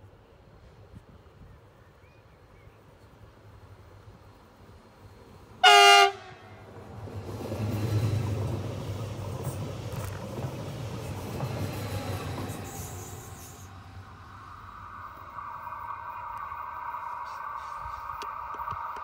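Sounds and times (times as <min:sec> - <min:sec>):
train wheels rumbling on rails: 0:02.8 - 0:19.0
train horn blast: 0:05.6 - 0:06.7.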